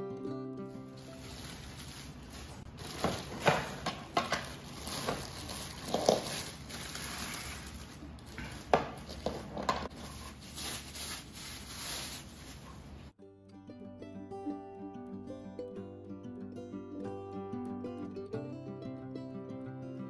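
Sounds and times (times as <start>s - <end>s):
plastic packaging rustling: 0.8s - 13.2s
plastic parts knocking on floor: 2.8s - 6.4s, 8.4s - 9.9s.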